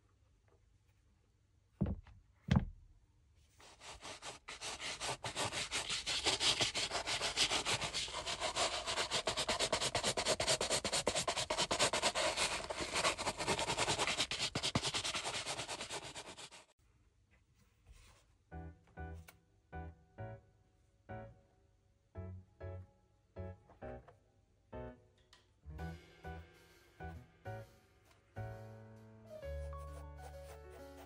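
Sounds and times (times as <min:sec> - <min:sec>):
soft thumps: 0:01.8 - 0:02.8
rubbing strokes on a shoe: 0:03.6 - 0:16.7.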